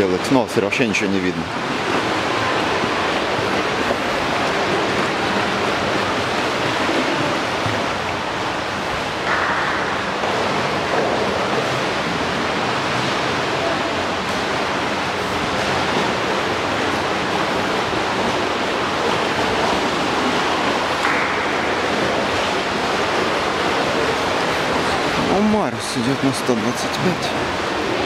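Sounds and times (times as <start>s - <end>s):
water lapping and splashing: 0.0s - 28.0s.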